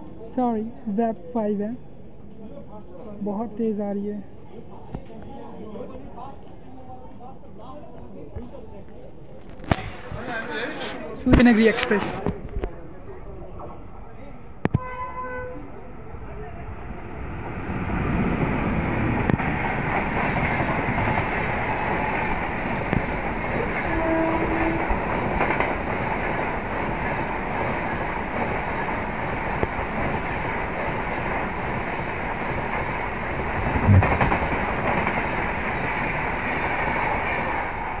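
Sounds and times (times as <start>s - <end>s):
train rushing past: 9.7s - 12.2s, 15.9s - 38.0s
coach wheels rattling on rails: 17.5s - 38.0s
loud knock: 33.8s - 34.4s.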